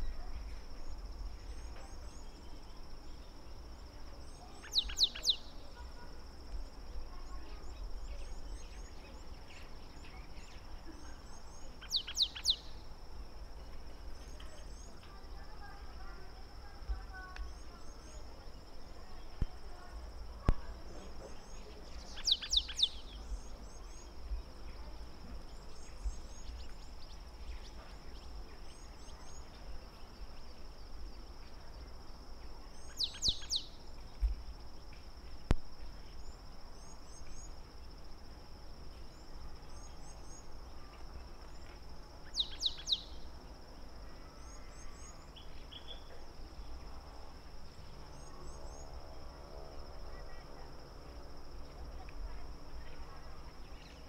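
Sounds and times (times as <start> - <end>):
faint high chirps: 0.0 - 13.0, 13.6 - 31.9, 32.5 - 38.1, 38.8 - 46.8
bird calls: 4.2 - 12.9, 13.6 - 30.6, 32.8 - 35.0, 39.1 - 43.4, 44.4 - 46.7.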